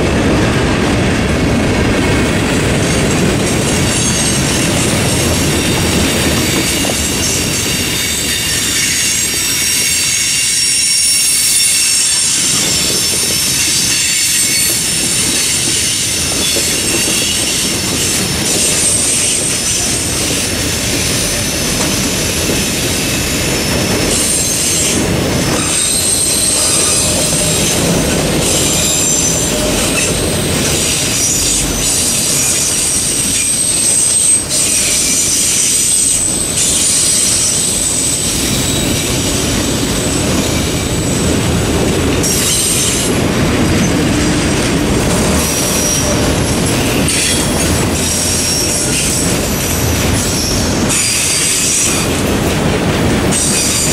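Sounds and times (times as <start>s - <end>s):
steel wheels clattering on rail: 0.0s - 53.9s
high-pitched wheel squeal: 5.6s - 17.8s, 23.0s - 39.2s.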